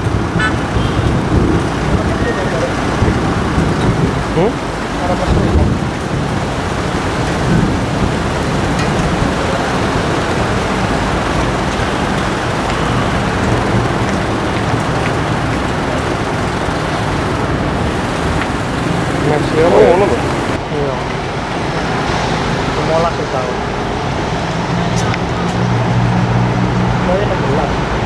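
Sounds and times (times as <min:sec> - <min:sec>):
steady rain falling: 0:00.0 - 0:28.0.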